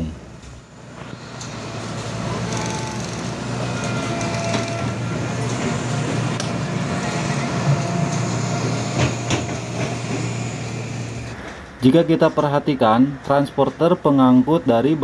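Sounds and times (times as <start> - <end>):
machine mechanical hum: 0.0 - 15.0
high whine: 0.6 - 11.9.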